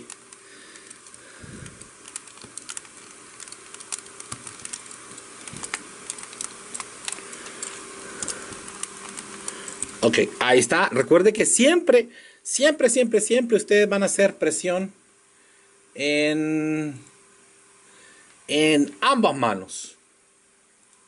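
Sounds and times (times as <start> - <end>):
plastic parts clicking and rubbing: 0.0 - 10.1.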